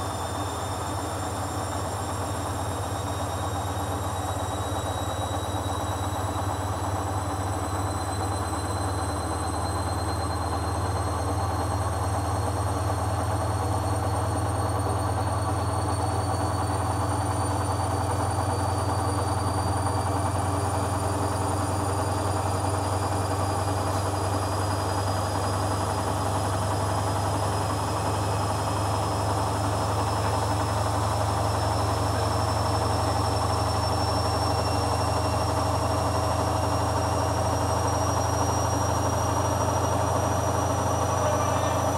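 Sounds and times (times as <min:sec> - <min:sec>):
washing machine spinning: 0:00.0 - 0:41.9.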